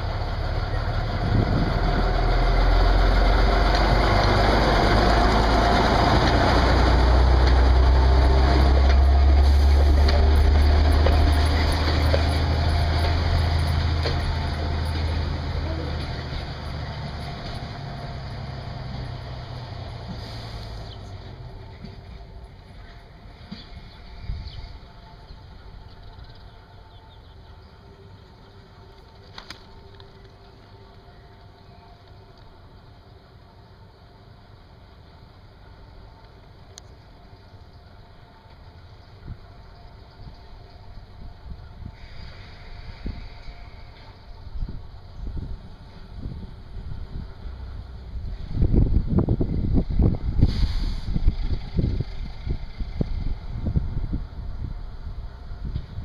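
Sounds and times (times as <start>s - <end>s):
train wheels clicking on track: 0.0s - 24.7s, 47.6s - 54.2s
diesel locomotive engine running: 0.0s - 56.0s.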